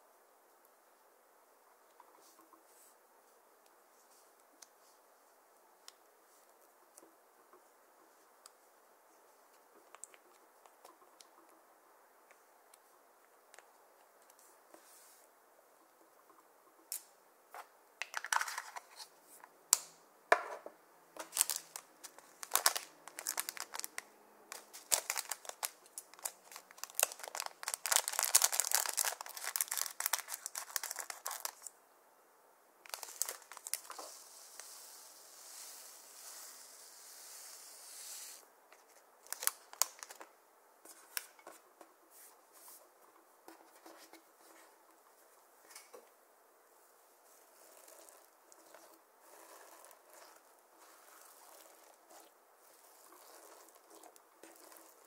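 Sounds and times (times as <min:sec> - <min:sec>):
plastic bag crinkling: 0:21.2 - 0:31.7, 0:32.9 - 0:34.0, 0:39.2 - 0:40.2
beads pouring out hiss: 0:32.9 - 0:38.4.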